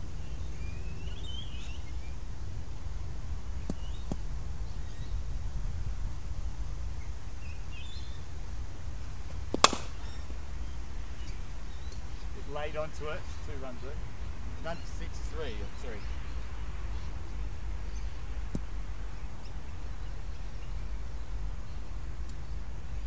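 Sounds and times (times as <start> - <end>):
birds chirping: 0.0 - 2.3, 3.6 - 5.3, 6.9 - 8.3, 9.6 - 23.0
cricket bat striking ball: 9.5 - 10.0.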